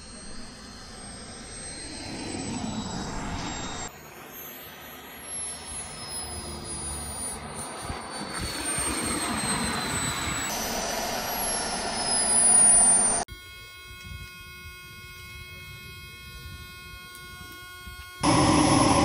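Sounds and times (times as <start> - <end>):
jet turbine whine: 0.0 - 19.0
rushing jet noise: 7.4 - 13.2, 18.2 - 19.0.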